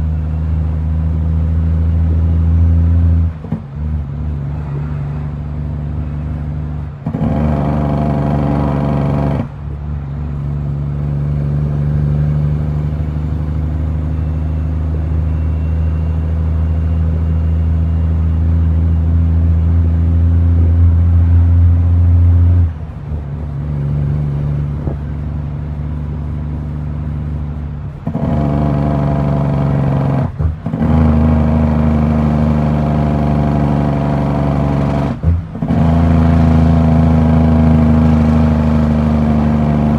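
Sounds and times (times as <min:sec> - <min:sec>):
diesel truck engine under load: 0:00.0 - 0:39.9.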